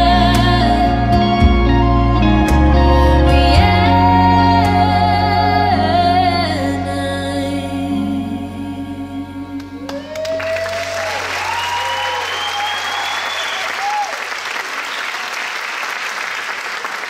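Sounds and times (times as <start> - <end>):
music closing chord: 0.0 - 10.2
audience applause: 9.8 - 17.0
audience cheering: 9.8 - 17.0.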